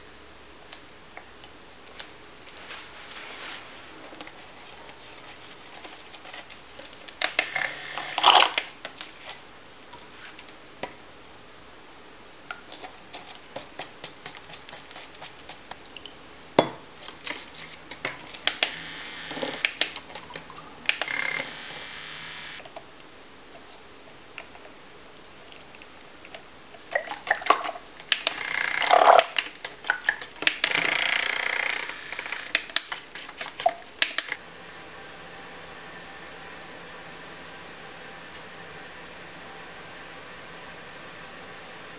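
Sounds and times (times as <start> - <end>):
handheld mixer whirring: 7.2 - 8.6, 18.4 - 19.8, 20.9 - 22.6, 28.2 - 29.3, 30.5 - 32.8.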